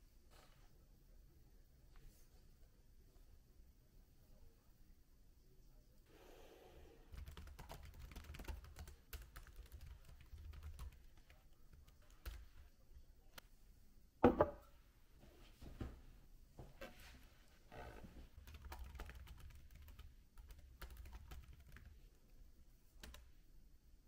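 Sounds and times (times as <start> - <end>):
loud knock: 14.2 - 14.6.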